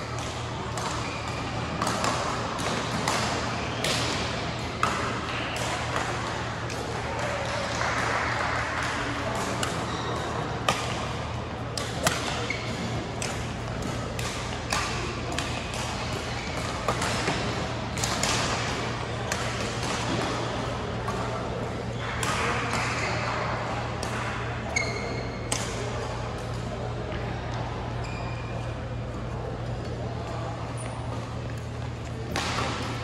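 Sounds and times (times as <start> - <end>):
murmur of voices: 0.0 - 33.0
rackets striking shuttlecock: 0.1 - 8.1, 8.8 - 23.4, 24.0 - 26.6, 32.3 - 33.0
shoe squeaks on court: 24.7 - 25.5.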